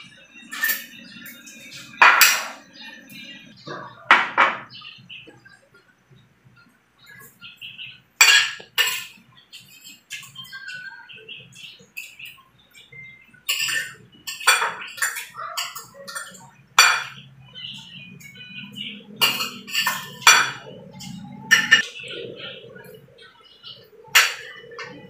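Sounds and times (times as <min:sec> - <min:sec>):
cutlery clinking on ceramic plate: 0:08.2 - 0:10.5, 0:13.5 - 0:17.3, 0:19.2 - 0:21.9.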